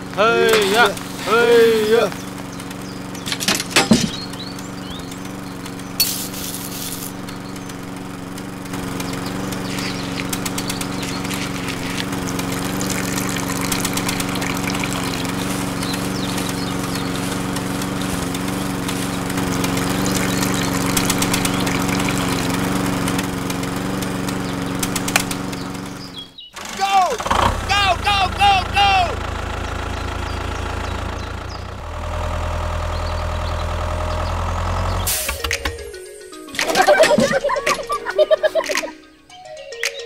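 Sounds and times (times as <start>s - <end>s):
rattling and clicking machine: 2.3s - 26.0s
small toy motor running: 3.2s - 26.0s.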